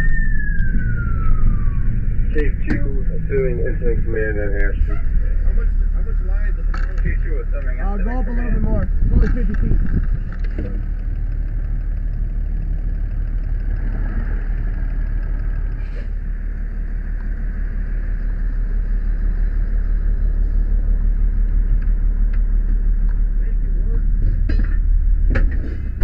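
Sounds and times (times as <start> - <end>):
fire engine running: 0.0 - 26.0.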